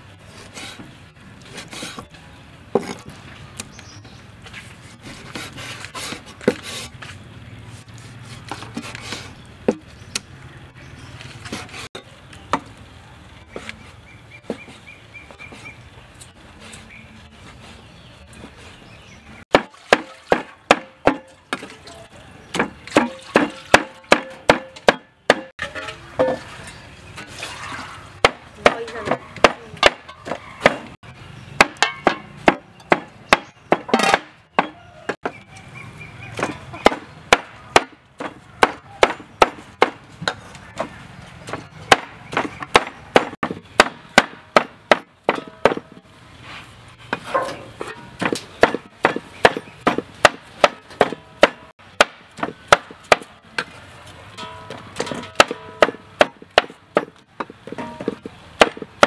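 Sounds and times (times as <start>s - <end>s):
cleaver chopping on wooden board: 19.5s - 21.7s, 22.5s - 25.5s, 28.2s - 30.9s, 31.6s - 35.4s, 36.4s - 46.0s, 47.1s - 53.3s, 55.0s - 59.0s.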